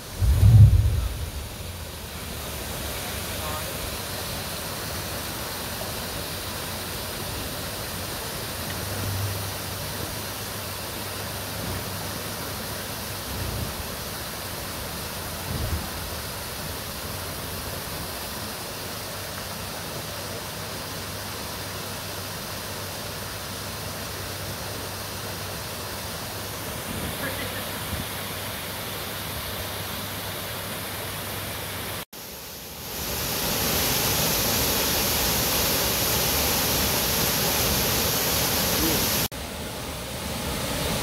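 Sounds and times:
low thuds: 0.0s - 2.0s
waterfall splashing: 0.0s - 41.0s.

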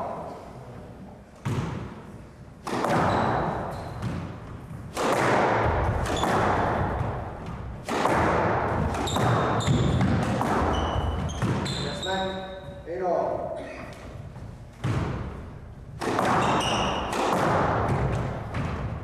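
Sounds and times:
squash ball hits echoing: 1.4s - 12.7s, 13.9s - 19.0s
shoe squeaks: 3.0s - 4.1s, 8.9s - 12.9s, 16.3s - 17.2s.

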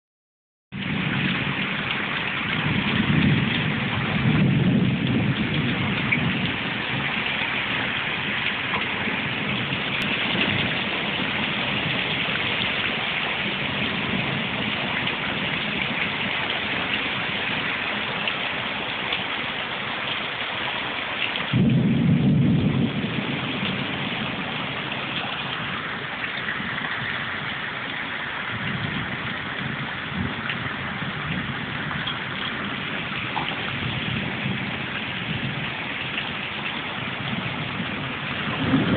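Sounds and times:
heavy rain on paving: 0.7s - 38.9s
deep low rumbles: 21.5s - 35.8s, 37.0s - 38.9s.

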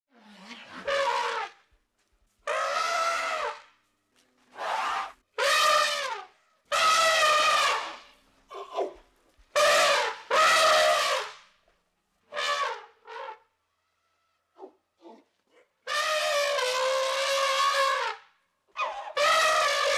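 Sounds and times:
elephant trumpeting: 0.3s - 1.6s, 2.5s - 3.6s, 4.6s - 8.0s, 15.9s - 18.1s, 18.8s - 19.9s.

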